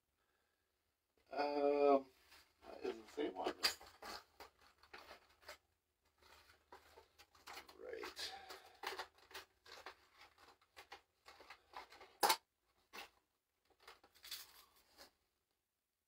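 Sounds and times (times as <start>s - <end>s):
packaging rustling and crinkling: 2.4s - 15.1s.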